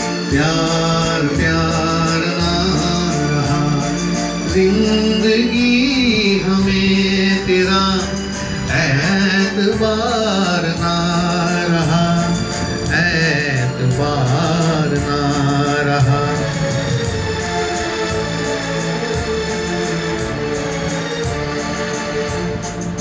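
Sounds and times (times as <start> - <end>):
man singing into a microphone: 0.0 - 17.9
backing track with steady beat: 0.0 - 23.0.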